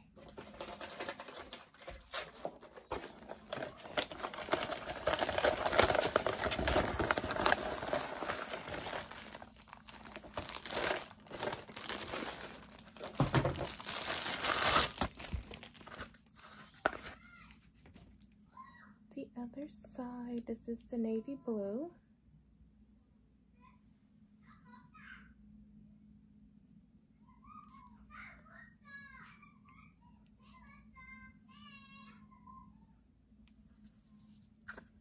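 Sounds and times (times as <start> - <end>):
tissue paper rustling and crumpling: 0.0 - 17.9.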